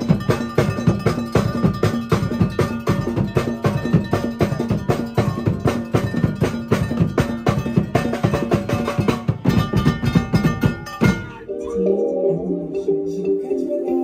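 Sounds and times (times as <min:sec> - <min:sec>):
percussion band playing: 0:00.0 - 0:13.7.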